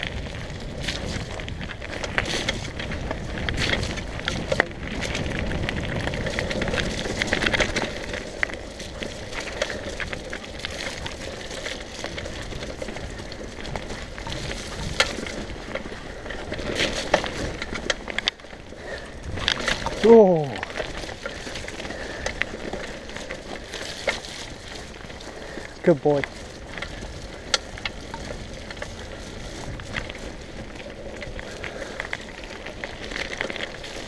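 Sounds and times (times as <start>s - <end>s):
bike rattling: 0.0s - 34.0s
tyres on wet dirt and gravel: 0.0s - 34.0s.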